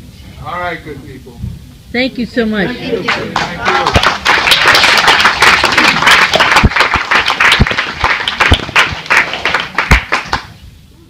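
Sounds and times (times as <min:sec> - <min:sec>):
audience applauding: 0:03.1 - 0:10.6.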